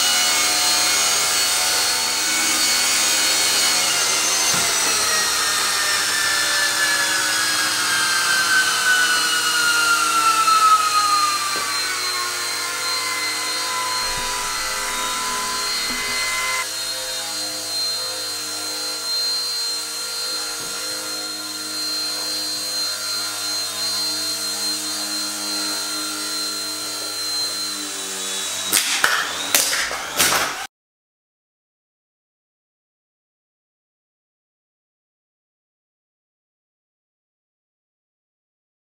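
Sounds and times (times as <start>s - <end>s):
toy helicopter rotors whining: 0.0s - 30.7s.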